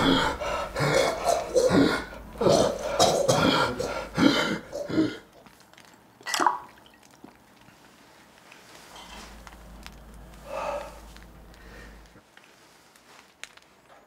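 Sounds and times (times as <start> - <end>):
man belching and gagging: 0.0 - 5.3.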